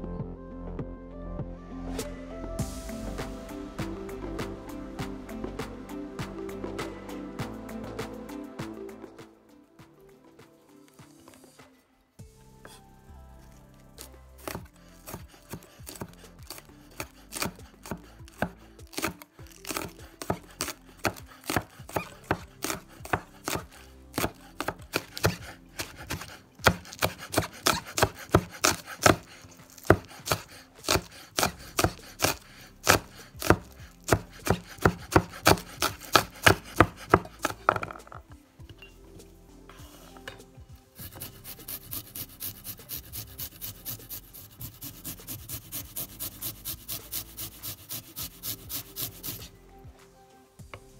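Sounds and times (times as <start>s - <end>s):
knife chopping on cutting board: 14.4s - 38.1s, 41.0s - 49.5s.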